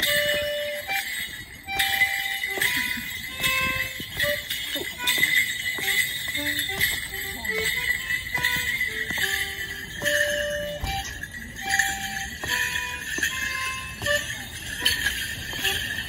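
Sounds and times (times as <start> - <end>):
shin bells jingling: 0.0 - 16.0.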